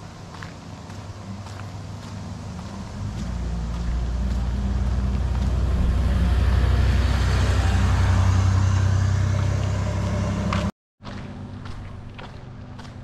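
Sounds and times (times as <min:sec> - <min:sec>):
faint footsteps on pavement: 0:00.0 - 0:06.2, 0:10.5 - 0:13.0
pickup truck driving past: 0:00.0 - 0:10.7.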